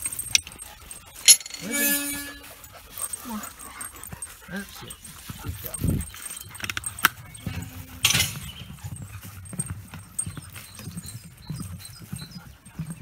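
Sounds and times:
scuffing clatter: 0.0 - 13.0
footsteps on wooden footbridge: 2.8 - 13.0.

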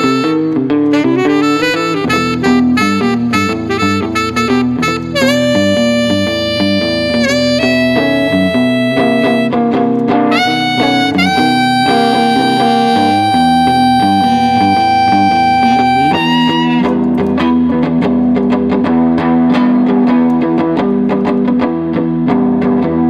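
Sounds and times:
saxophone playing: 0.0 - 17.6
electric guitar strumming chords: 0.0 - 23.0.

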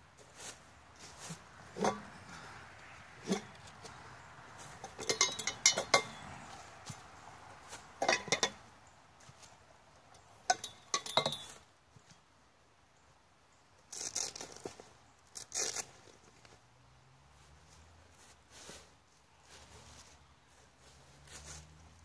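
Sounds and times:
dry leaves crunching underfoot: 0.2 - 8.1, 17.4 - 22.0
metal tubes clinking together: 4.8 - 6.4, 8.0 - 8.6, 10.5 - 11.6.

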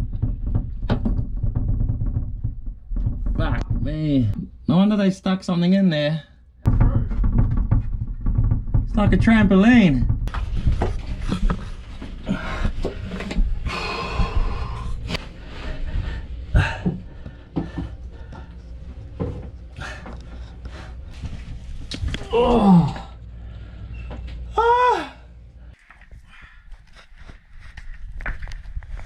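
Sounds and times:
man groaning with effort: 22.2 - 23.1.

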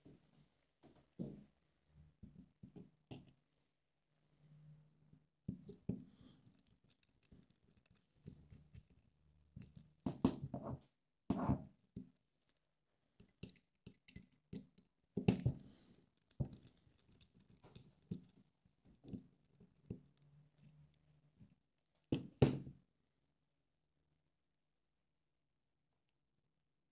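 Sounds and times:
parts handled with knocks and clicks: 2.2 - 3.4, 5.5 - 12.6, 13.2 - 22.7.

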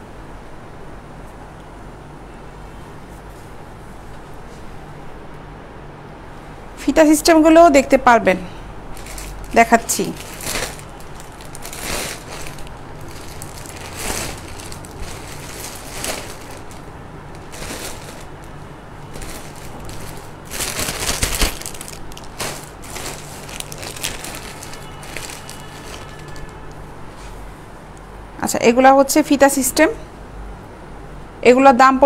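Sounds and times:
plastic packaging rustling: 8.9 - 26.8.

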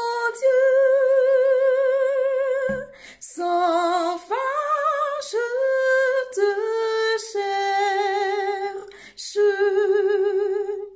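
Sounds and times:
woman singing a cappella: 0.0 - 10.9
woman breathing: 2.9 - 3.2, 8.9 - 9.2.

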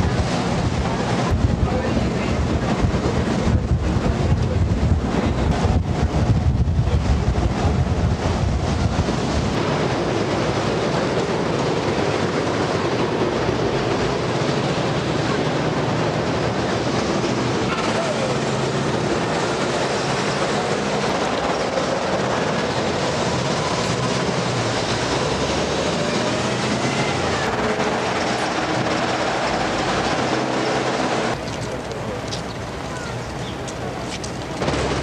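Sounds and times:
moving vehicle rumbling: 0.0 - 35.0
faint indistinct voices: 31.3 - 34.6.

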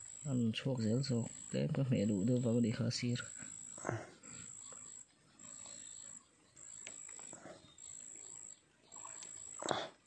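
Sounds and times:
insect trilling: 0.0 - 10.0.

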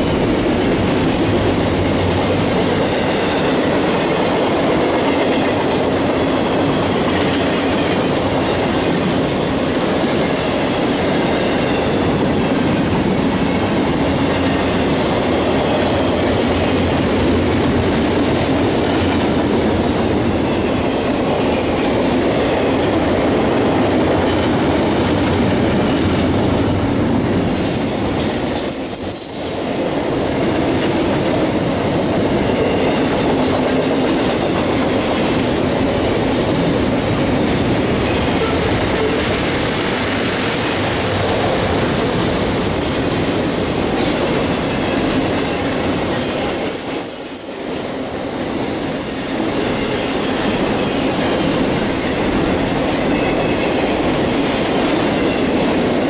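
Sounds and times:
freight train wheels rumbling: 0.0 - 56.0
high wheel squeal: 26.7 - 29.7.

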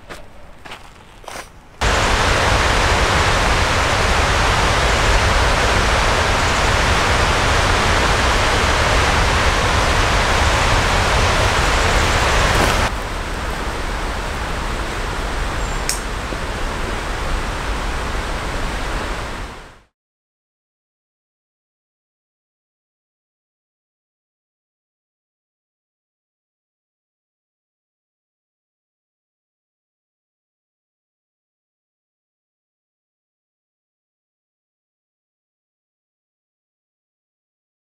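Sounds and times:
whitewater rushing: 1.8 - 19.8.

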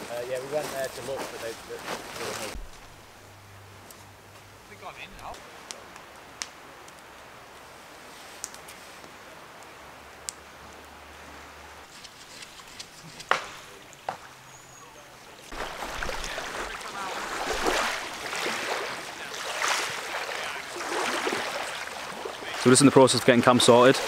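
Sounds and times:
water lapping on pebbles: 15.4 - 24.0.

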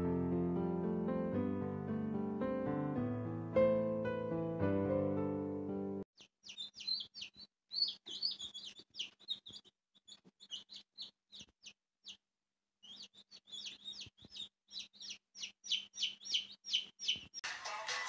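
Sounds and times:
chicks peeping: 6.2 - 12.2, 12.8 - 17.4.

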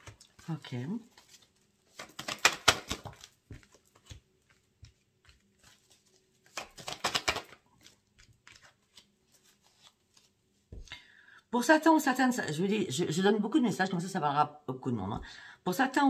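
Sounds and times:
cards being shuffled: 0.0 - 10.9.

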